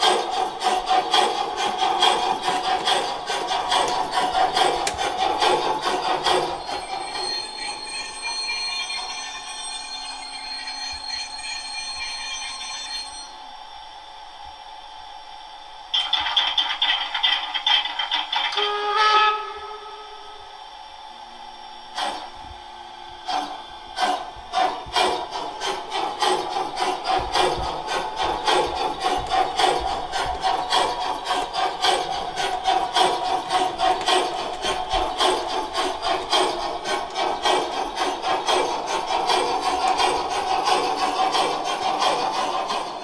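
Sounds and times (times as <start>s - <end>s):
steam locomotive exhaust chuffs: 0.0s - 13.4s, 15.4s - 43.0s
model locomotive whistle: 6.3s - 13.4s, 18.5s - 20.6s.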